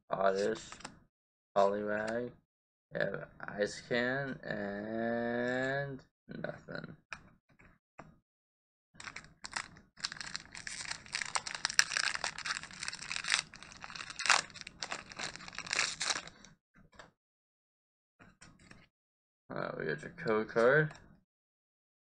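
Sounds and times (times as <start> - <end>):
foil wrapper crinkling and tearing: 9.0 - 16.4.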